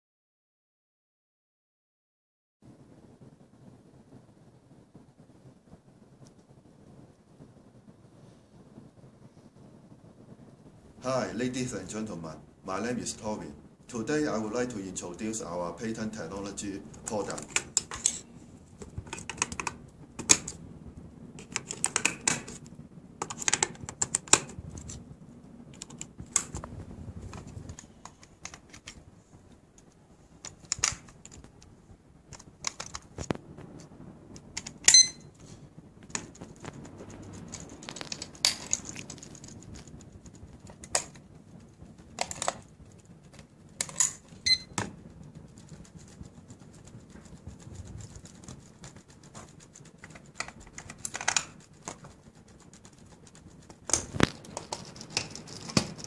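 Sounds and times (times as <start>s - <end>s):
clicks and knocks of clock parts: 43.8s - 44.9s.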